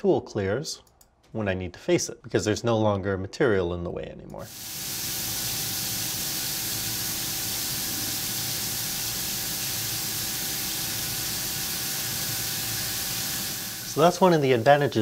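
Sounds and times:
coolant spray hissing: 4.5 - 15.0.

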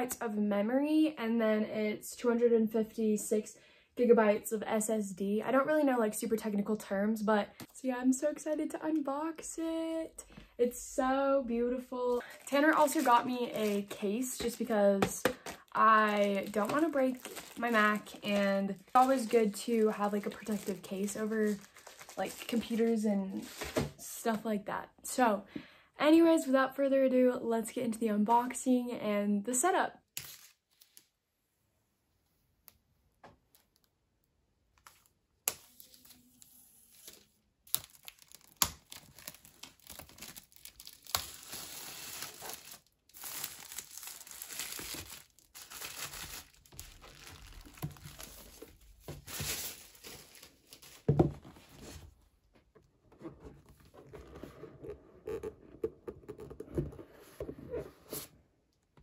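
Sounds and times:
box rustling: 15.2 - 18.2
plastic wrap crinkling and tearing: 15.4 - 23.7, 34.8 - 51.1.

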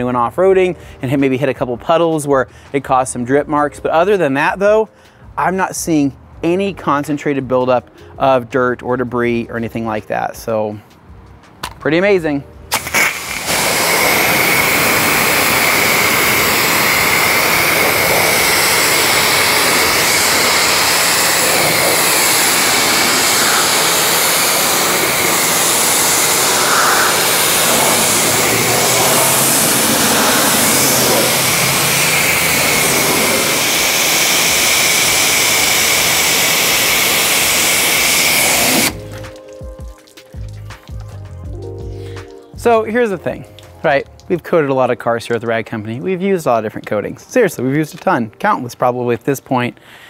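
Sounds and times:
pressure washer spraying water: 12.7 - 41.0.

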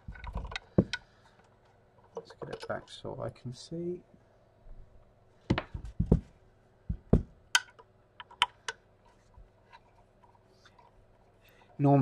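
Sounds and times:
sharp knocks and clicks: 0.0 - 1.1, 5.5 - 6.3, 6.9 - 8.8
heavier thuds: 5.5 - 7.4.

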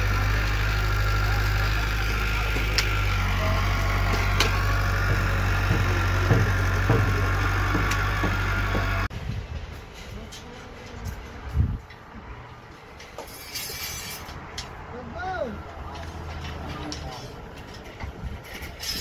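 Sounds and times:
diesel engine humming: 0.0 - 9.6
sharp knocks and clunks: 4.0 - 9.1.

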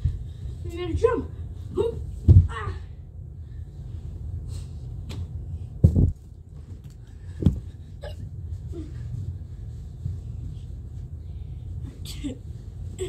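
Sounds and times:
steady low hum: 0.0 - 13.0
body thudding on carpeted stairs: 1.8 - 2.8, 5.1 - 7.9.

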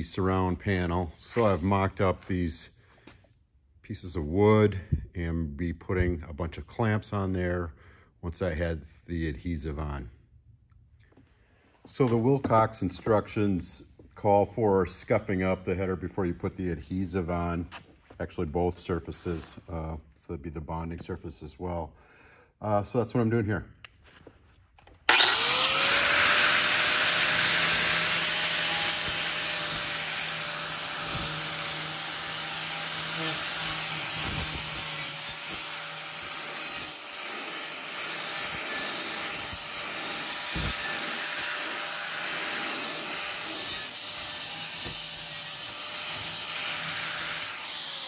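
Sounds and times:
power tool motor whine: 25.1 - 48.0.

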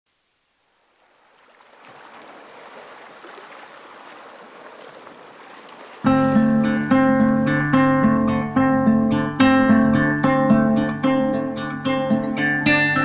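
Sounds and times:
running water: 0.3 - 8.5
strummed guitar music: 6.0 - 13.0.

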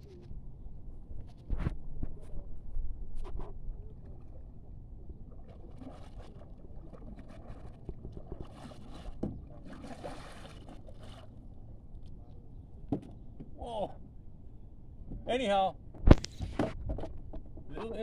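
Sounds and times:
paddle splashing water: 4.0 - 11.5.

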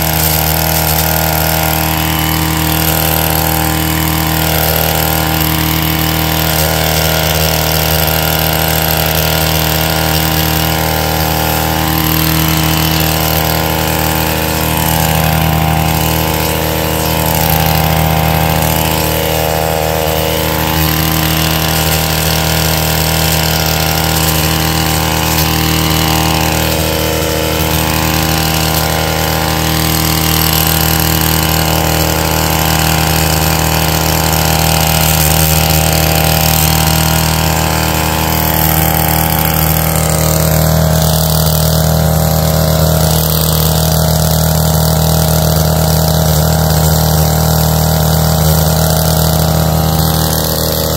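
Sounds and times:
small engine running steadily: 0.0 - 50.9.

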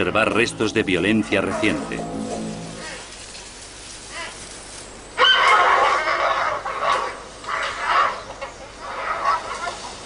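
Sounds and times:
pandas making harsh calls: 2.6 - 3.3, 4.0 - 10.0.

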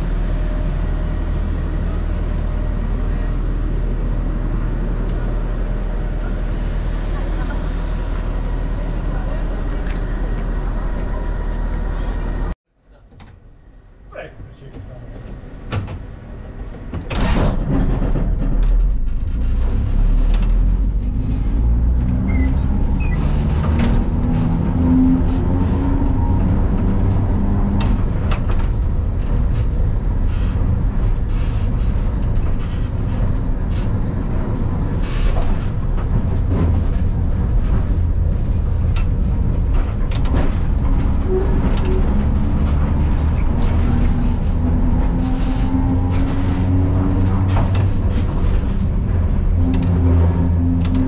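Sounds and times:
tram motors whining: 0.0 - 12.6, 19.7 - 51.0
wheels rumbling on rails: 0.0 - 12.6, 14.6 - 51.0
clicks over rail joints: 23.2 - 51.0.

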